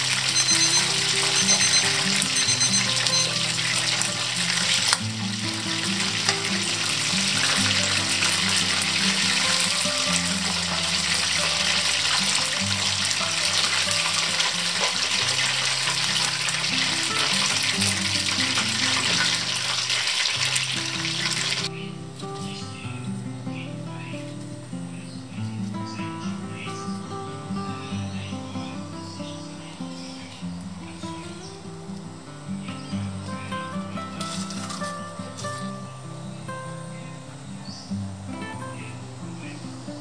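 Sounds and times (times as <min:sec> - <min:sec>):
background music: 0:00.0 - 0:20.2
hot oil sizzling: 0:00.0 - 0:22.6, 0:33.8 - 0:35.9.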